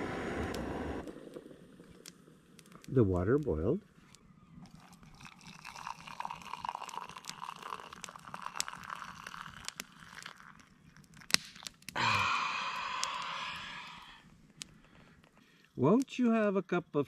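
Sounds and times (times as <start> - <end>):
rushing hiss: 0.0 - 1.4
campfire crackling and popping: 0.0 - 16.8
water pouring into mug: 4.6 - 11.1.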